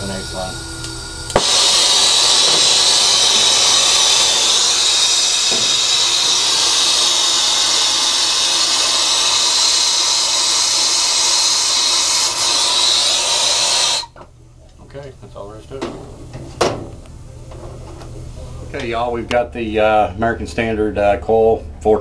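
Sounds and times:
torch flame hissing: 0.0 - 14.2.

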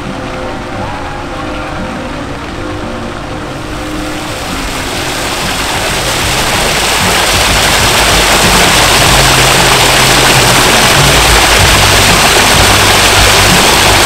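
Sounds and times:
fountain water splashing into pond: 3.6 - 14.0.

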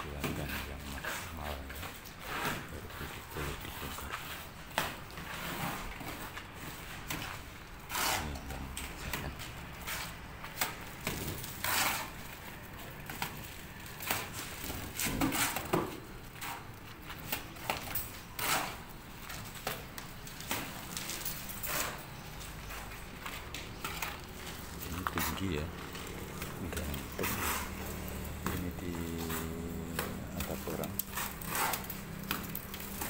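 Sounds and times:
plastering scrapes: 0.2 - 12.4, 14.0 - 16.7, 17.6 - 19.0, 23.9 - 33.0.

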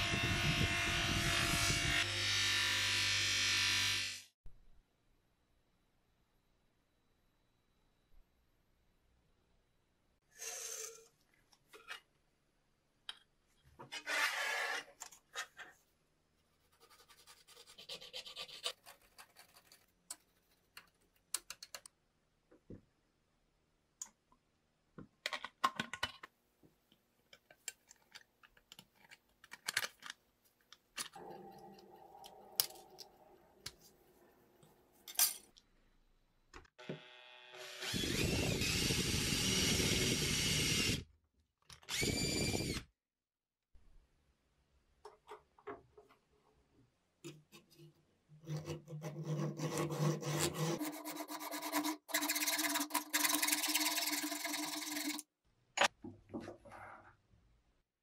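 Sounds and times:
electric drill running: 36.8 - 41.0, 41.9 - 42.9.

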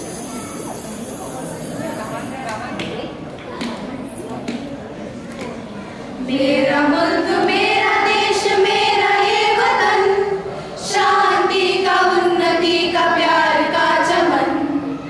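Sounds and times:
girls singing together: 6.2 - 15.0.

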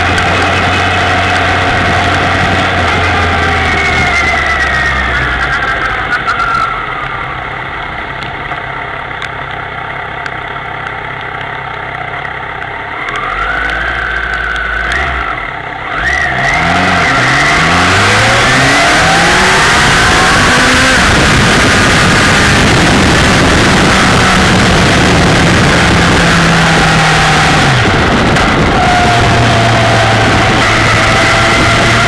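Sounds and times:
motorcycle engine: 0.0 - 32.0.

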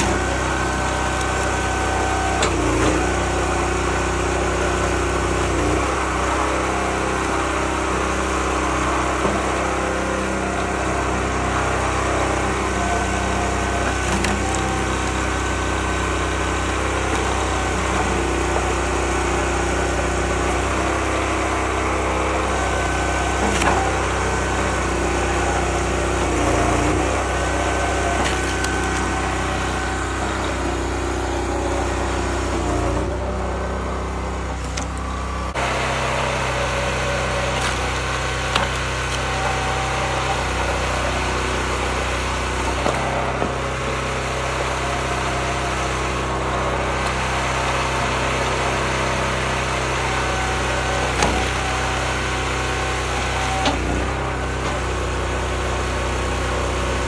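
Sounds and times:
small gas engine running: 0.0 - 57.0
wood cracking: 11.6 - 31.1, 34.5 - 40.3.

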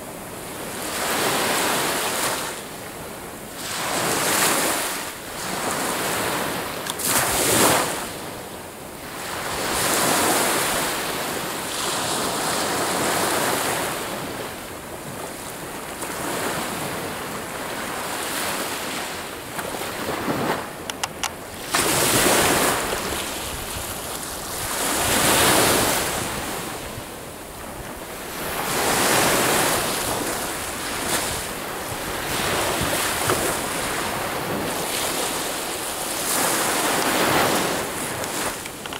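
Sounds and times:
clicks: 20.9 - 21.4
waves breaking on pebble beach: 21.6 - 26.8, 28.2 - 38.9.

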